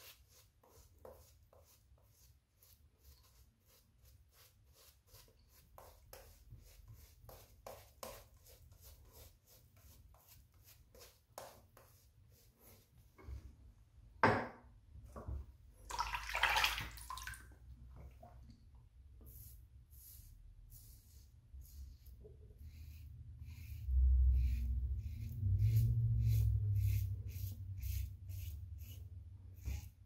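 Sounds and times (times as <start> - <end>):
shaving brush swishing lather: 0.0 - 13.1, 19.3 - 30.0.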